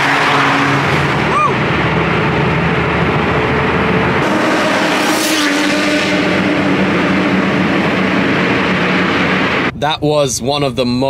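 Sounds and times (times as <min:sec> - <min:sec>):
car engines running: 0:00.0 - 0:10.9
car passing by: 0:04.2 - 0:09.7.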